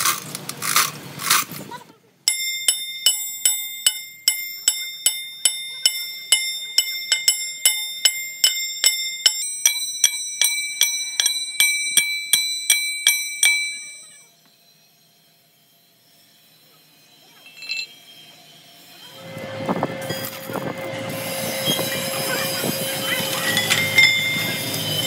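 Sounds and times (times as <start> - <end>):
ringing metallic strikes: 2.3 - 14.3, 19.1 - 25.0.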